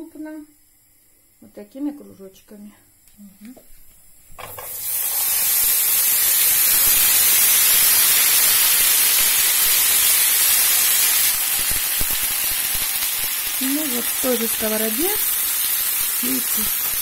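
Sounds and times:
potato slices sizzling in oil: 4.4 - 17.0.

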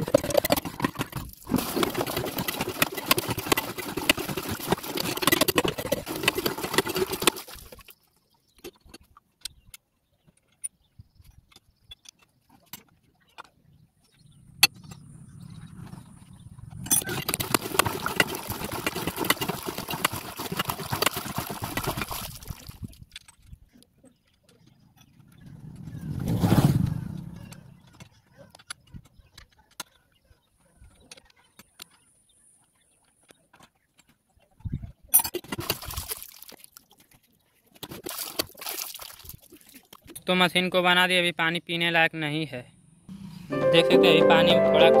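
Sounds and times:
water gushing into a plastic basin: 0.0 - 7.9, 17.0 - 23.0, 35.5 - 36.9, 37.8 - 40.0.

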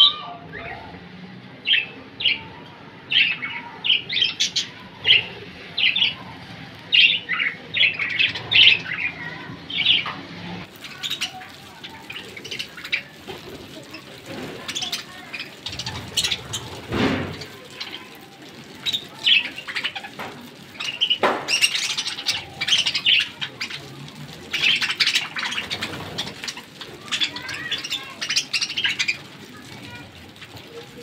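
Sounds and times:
budgerigars chirping and chattering: 6.9 - 10.1, 10.7 - 18.1, 18.7 - 29.6.

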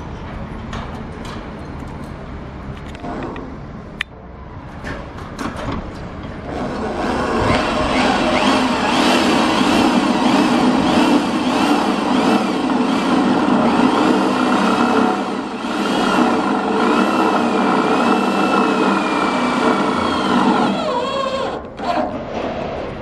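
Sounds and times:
cordless drill driving screw: 6.6 - 22.0.

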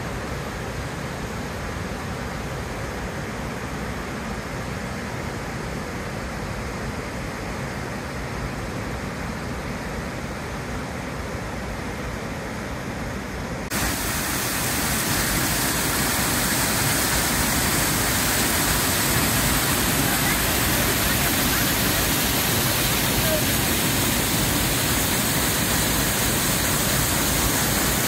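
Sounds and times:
waterfall rushing: 13.6 - 28.0.

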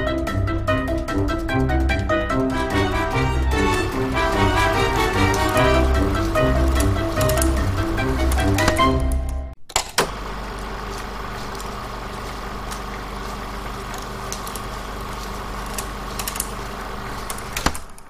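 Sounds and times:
low mechanical hum: 2.5 - 9.0, 9.7 - 18.0
clicks: 2.5 - 18.0
constant hiss: 2.6 - 8.6, 10.1 - 17.8.

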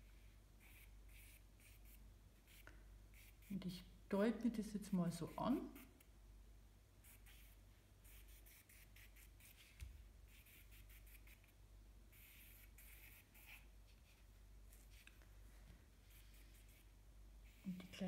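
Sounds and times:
charcoal scratching on paper: 0.6 - 3.6, 5.2 - 6.0, 7.0 - 15.1, 16.0 - 18.0.

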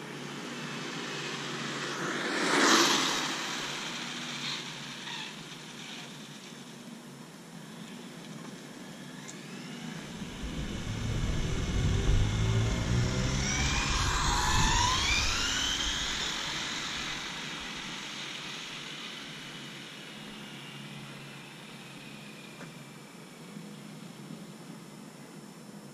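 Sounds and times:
rc truck electric motor whine: 7.6 - 23.6.

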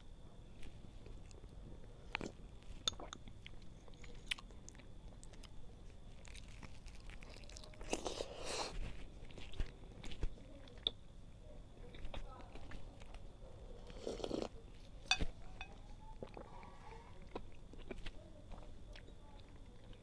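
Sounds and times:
person chewing: 1.0 - 5.5, 6.1 - 11.0, 13.8 - 15.3, 16.2 - 18.1
slurp from a spoon: 13.8 - 14.5.

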